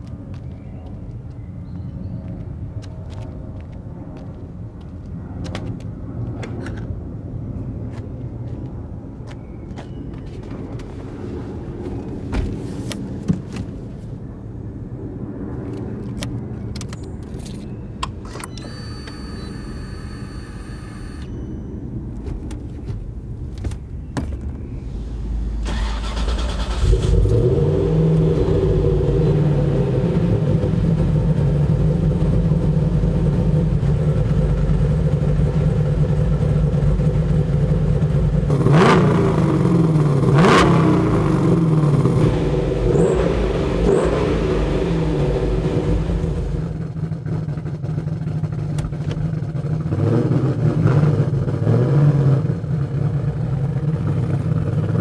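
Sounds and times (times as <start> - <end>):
car engine starting and idling: 16.1 - 50.6
short steady tone: 18.4 - 21.8
low rumble: 21.3 - 38.5.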